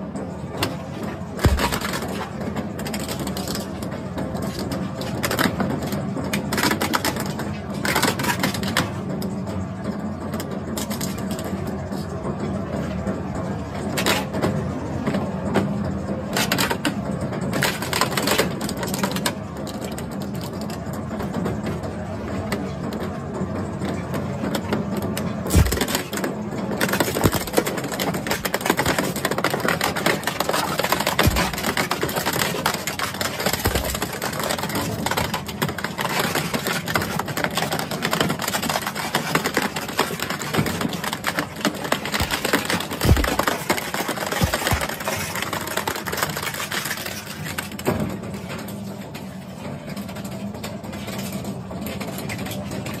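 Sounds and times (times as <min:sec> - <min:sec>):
shredder crunching plastic: 0:00.6 - 0:03.8, 0:25.4 - 0:48.1
machine hum: 0:01.2 - 0:02.6, 0:25.5 - 0:36.9, 0:39.8 - 0:46.1
heavy thuds: 0:25.5 - 0:26.0, 0:31.2 - 0:31.8, 0:42.2 - 0:43.5.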